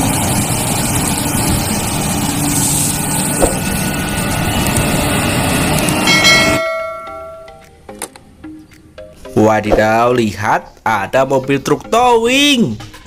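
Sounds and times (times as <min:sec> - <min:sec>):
excavator diesel engine running: 0:00.0 - 0:07.4.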